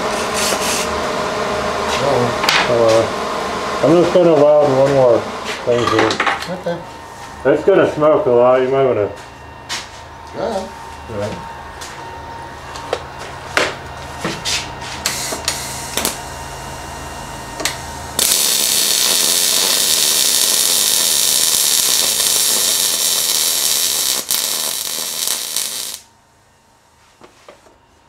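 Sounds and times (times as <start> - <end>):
welding arc sizzling hiss: 0.0 - 1.0, 14.9 - 16.4, 17.6 - 26.1
welder hum: 0.0 - 9.1, 9.7 - 26.1.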